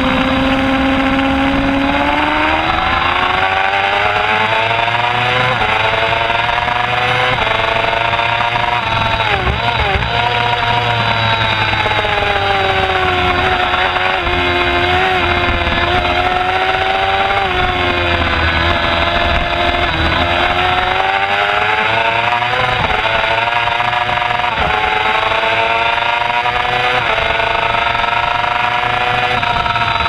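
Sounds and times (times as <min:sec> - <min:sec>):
motorcycle engine at race speed: 0:00.0 - 0:30.0
wind rumble on microphone: 0:08.7 - 0:21.9.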